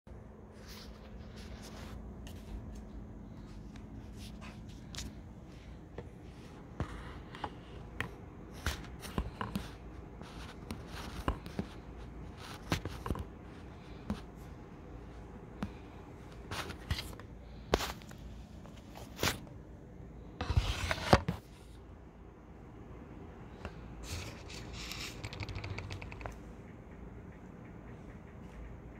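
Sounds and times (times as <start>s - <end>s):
handling taps and clicks: 24.5s - 28.9s.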